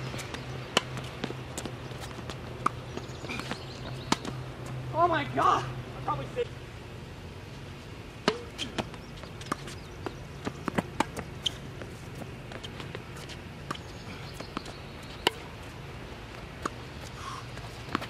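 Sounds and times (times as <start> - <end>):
tennis ball bouncing: 0.1 - 4.5, 8.2 - 15.6, 17.5 - 18.0
racket hitting tennis ball: 8.2 - 9.8, 10.6 - 13.8, 15.2 - 15.6.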